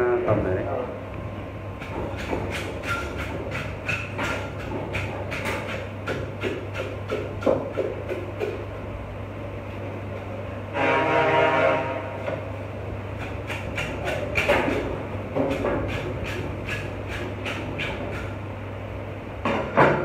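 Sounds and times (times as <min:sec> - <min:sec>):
steady low hum: 0:00.0 - 0:20.0
knife scraping fish skin: 0:15.5 - 0:18.3.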